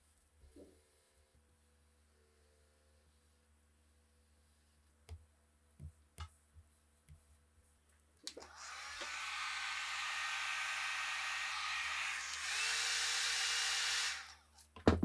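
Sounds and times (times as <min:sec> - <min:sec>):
heat gun fan blowing: 0:08.3 - 0:14.4.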